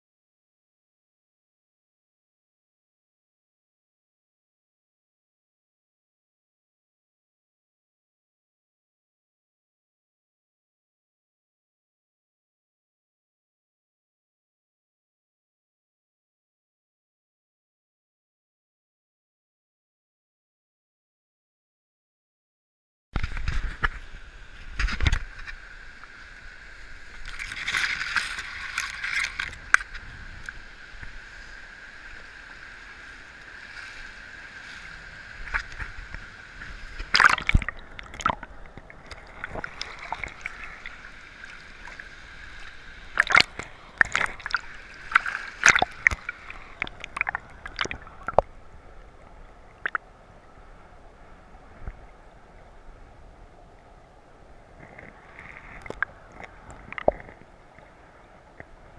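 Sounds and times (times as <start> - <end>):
muffled river water sloshing: 23.2 - 58.9.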